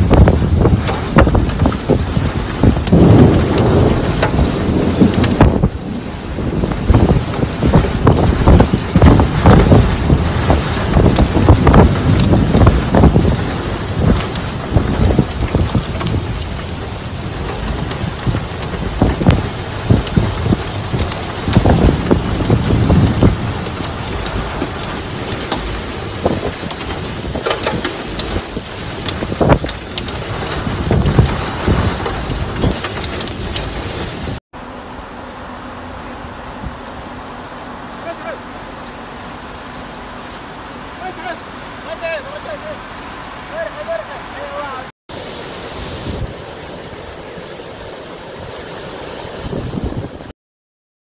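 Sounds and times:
wind buffeting microphone: 0:00.0 - 0:34.4, 0:35.9 - 0:50.3
heavy rain pouring: 0:00.0 - 0:50.3
waterfall rushing: 0:33.5 - 0:50.3.

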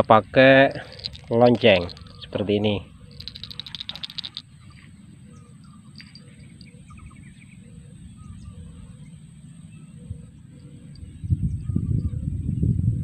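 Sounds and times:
small bell jingling: 0:00.7 - 0:02.3, 0:03.1 - 0:04.8, 0:05.6 - 0:07.2
high bird chirps: 0:00.8 - 0:12.2.

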